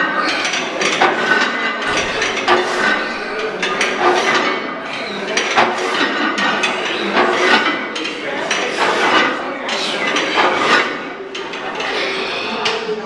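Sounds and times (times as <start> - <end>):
weight plates clanking: 0.0 - 13.0.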